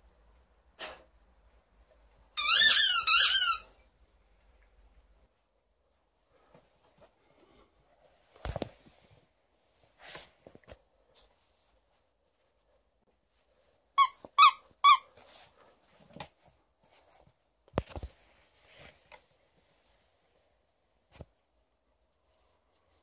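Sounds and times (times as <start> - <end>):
dog toy squeaking: 2.4 - 3.7, 14.0 - 15.1.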